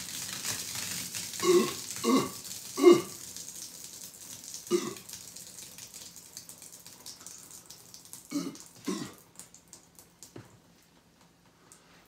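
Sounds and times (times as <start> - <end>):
man burping: 1.4 - 3.2, 4.7 - 5.1, 8.3 - 9.2.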